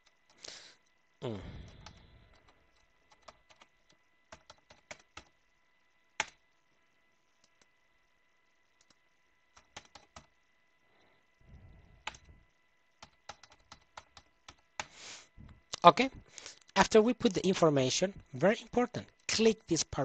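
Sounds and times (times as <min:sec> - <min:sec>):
computer keyboard typing: 0:01.6 - 0:05.4, 0:06.2 - 0:06.4, 0:08.8 - 0:10.4, 0:12.0 - 0:12.3, 0:13.0 - 0:14.9.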